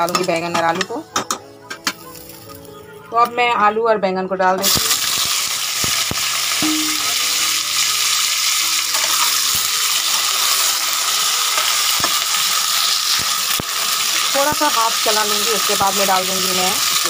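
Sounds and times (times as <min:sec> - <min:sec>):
vegetables sizzling in hot oil: 0:00.0 - 0:00.8, 0:04.6 - 0:17.0.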